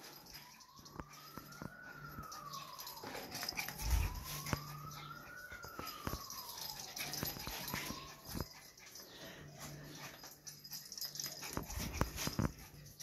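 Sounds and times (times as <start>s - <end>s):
distant siren wailing: 0.0s - 13.0s.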